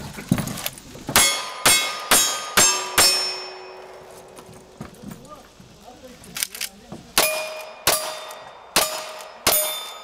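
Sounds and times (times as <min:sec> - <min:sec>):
steel target ringing: 0:01.2 - 0:04.2, 0:07.2 - 0:10.0.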